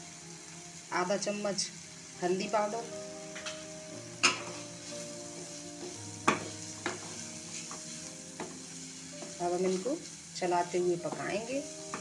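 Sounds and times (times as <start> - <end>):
vegetables sizzling in a frying pan: 0.0 - 12.0
wooden spatula scraping a pan: 4.2 - 12.0
spatula knocking on a pan: 5.4 - 8.6, 11.0 - 12.0.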